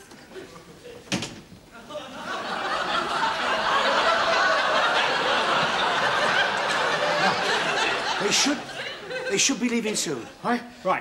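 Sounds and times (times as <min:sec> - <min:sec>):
studio audience laughing: 0:01.8 - 0:10.4.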